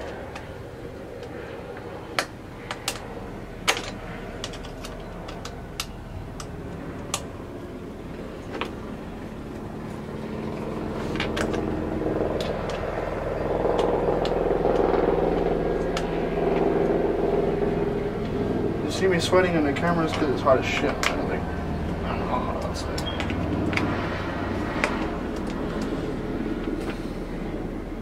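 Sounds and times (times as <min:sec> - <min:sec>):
steady hum: 0:00.0 - 0:28.0
light clicks and taps of tools: 0:03.7 - 0:07.3.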